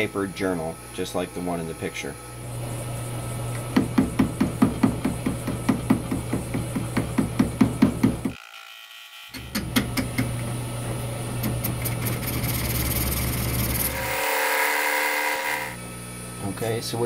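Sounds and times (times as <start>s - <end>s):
metal lathe humming: 0.0s - 7.2s, 9.3s - 16.6s
lathe tool knocking on metal: 3.6s - 8.4s.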